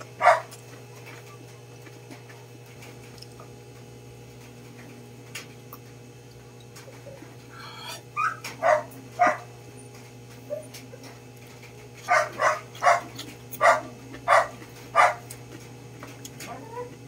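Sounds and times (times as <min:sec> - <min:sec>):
dog barking: 0:00.2 - 0:00.6, 0:08.2 - 0:09.5, 0:12.0 - 0:15.3.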